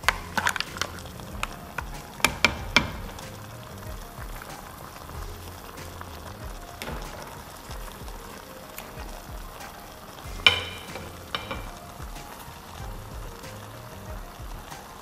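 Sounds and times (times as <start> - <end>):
mussel shells clacking in pot: 0.0 - 8.0
pot sizzling: 0.0 - 15.0.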